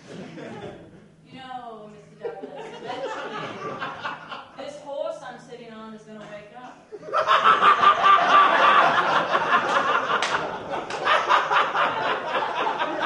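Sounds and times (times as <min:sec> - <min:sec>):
audience laughing: 0:00.0 - 0:01.0, 0:02.2 - 0:04.6, 0:06.9 - 0:13.0.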